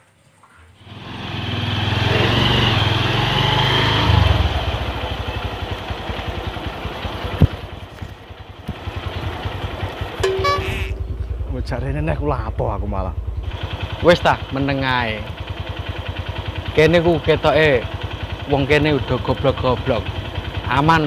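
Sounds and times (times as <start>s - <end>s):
small motorcycle engine running: 0.8s - 21.0s
short tone: 10.2s - 11.5s.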